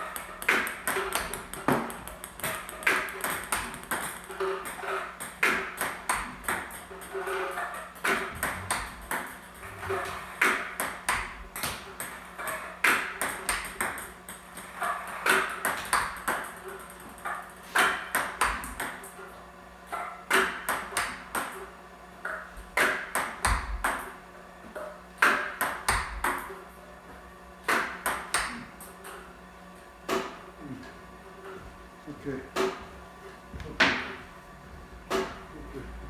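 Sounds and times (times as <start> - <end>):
table tennis ball clicks: 0.0 - 9.4, 10.4 - 19.1.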